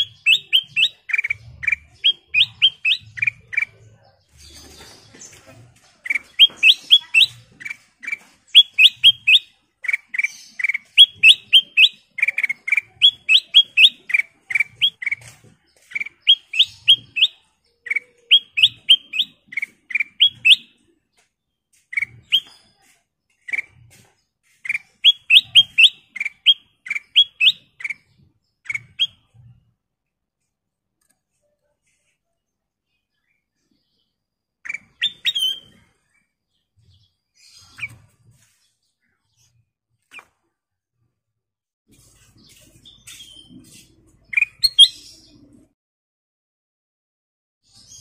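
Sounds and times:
bird singing: 0.0 - 29.6, 32.9 - 40.3, 42.4 - 45.7.

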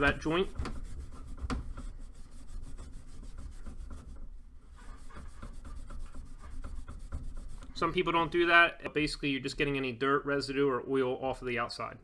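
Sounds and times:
steel wool scrubbing copper pipe: 0.0 - 8.5.

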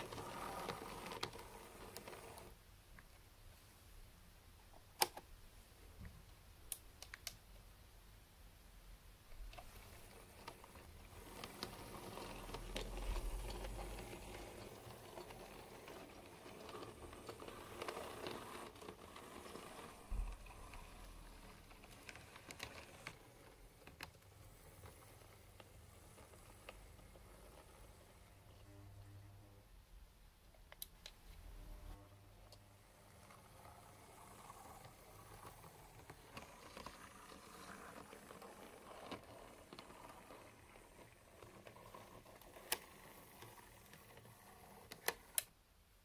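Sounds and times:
model train motor whir: 0.0 - 2.6, 9.6 - 28.8, 31.6 - 45.5.

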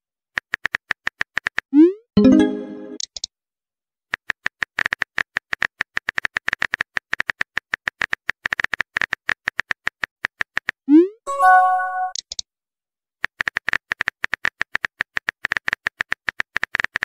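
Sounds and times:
message chime: 2.2 - 3.0, 11.3 - 12.2.

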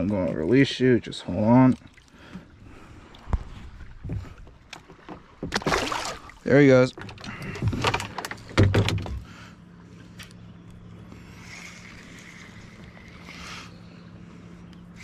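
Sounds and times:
water splashes: 0.0 - 3.9, 5.4 - 6.9
low hum: 0.0 - 15.0.

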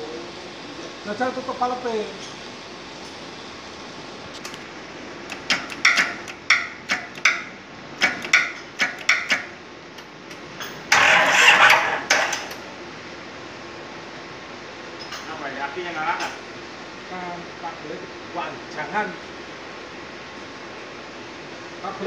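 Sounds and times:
diesel engine cranking knocks: 5.3 - 9.6, 10.3 - 12.6
engine burst: 10.9 - 12.6.

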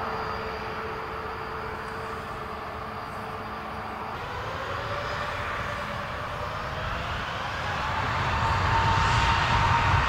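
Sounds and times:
jet engines rolling: 0.0 - 10.0.

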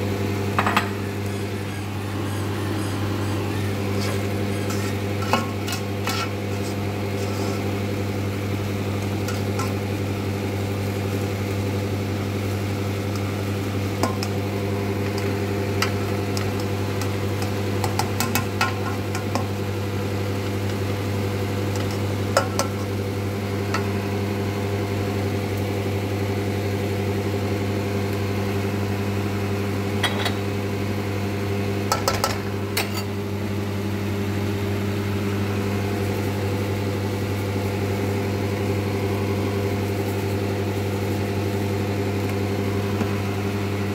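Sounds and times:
low motor hum: 0.0 - 43.9
spatula scraping in wok: 1.2 - 8.0, 9.2 - 10.0.

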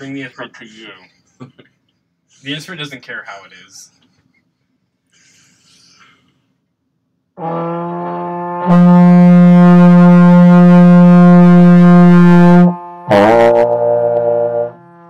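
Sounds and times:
trombone long held note: 7.4 - 15.0.

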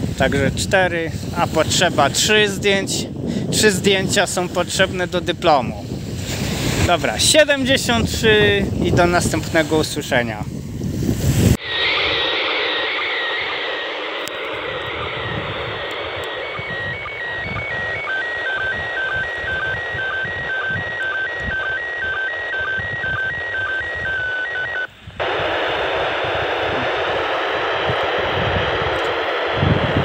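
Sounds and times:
wind rumble on microphone: 0.0 - 13.4, 14.1 - 30.0
radio receiver hiss: 11.5 - 30.0
tone alternating between two pitches: 11.6 - 27.2.

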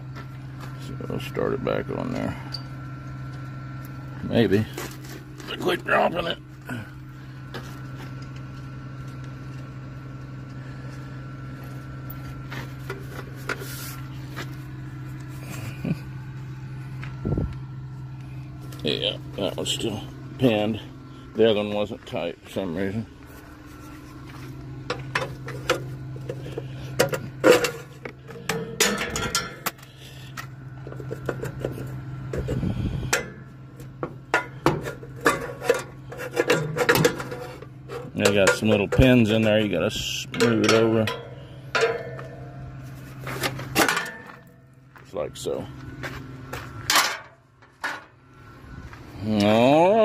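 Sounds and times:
motor hum: 0.0 - 50.0
metal knocks and clanks: 27.0 - 29.8.

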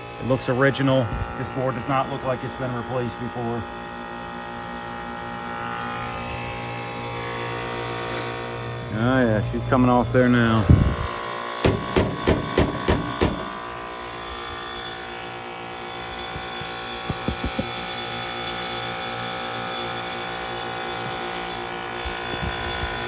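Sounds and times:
heat pump humming: 0.0 - 23.0
hand tapping metal cabinet: 11.6 - 13.6.

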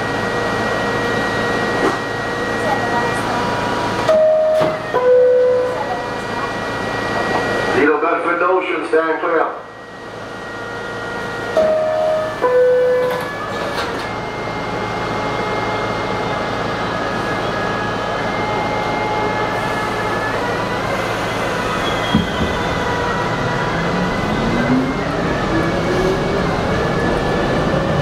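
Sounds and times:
subway doors closing clunk: 1.0 - 7.6, 11.5 - 14.3, 19.2 - 28.0
two-tone door chime: 4.1 - 5.8
traction motors whining: 9.8 - 28.0
train wheels on rails: 11.6 - 14.2, 20.9 - 28.0.

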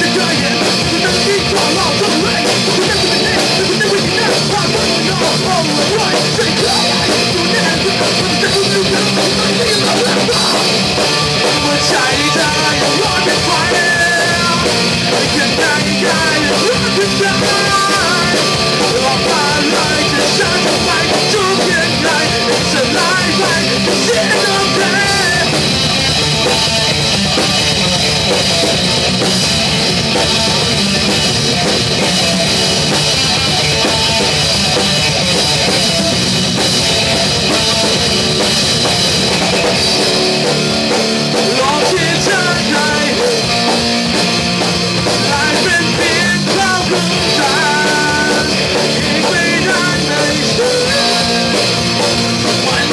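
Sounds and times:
man singing: 0.0 - 26.4, 41.3 - 43.8, 45.0 - 52.9
distorted electric guitar: 0.0 - 52.9
drum kit: 0.0 - 52.9.

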